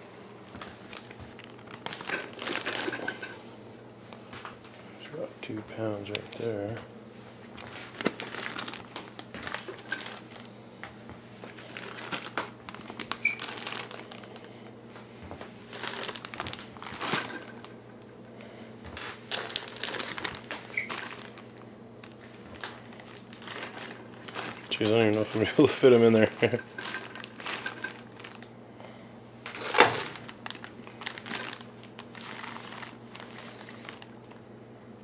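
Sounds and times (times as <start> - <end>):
low steady hum: 0.0 - 35.0
plastic bags crinkling and rustling: 0.5 - 3.5, 7.5 - 10.6, 11.4 - 14.5, 15.2 - 18.1, 18.9 - 28.5, 29.4 - 34.5.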